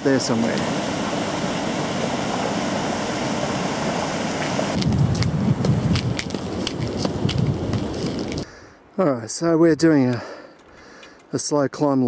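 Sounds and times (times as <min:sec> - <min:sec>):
wind rushing over microphone: 0:00.0 - 0:08.6
footsteps on concrete: 0:04.8 - 0:08.5.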